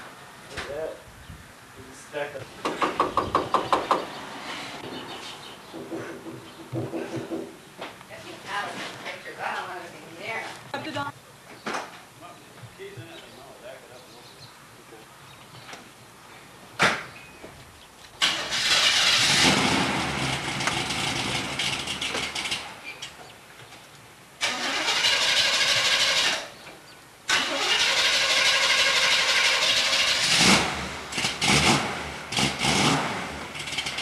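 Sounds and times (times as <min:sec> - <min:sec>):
car engine starting and running: 0:18.2 - 0:22.8, 0:24.4 - 0:26.6, 0:27.3 - 0:34.0.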